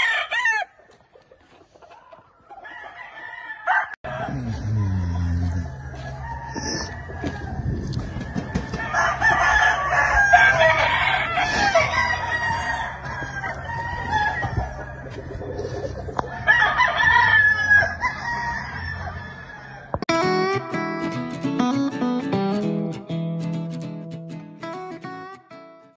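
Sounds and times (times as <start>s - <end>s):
roosters crowing: 0.0s - 20.0s
chickens clucking: 0.7s - 3.0s, 3.7s - 17.0s.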